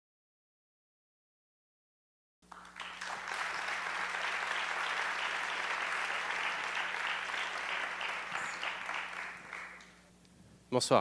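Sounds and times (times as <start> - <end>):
audience applauding: 2.4 - 10.0.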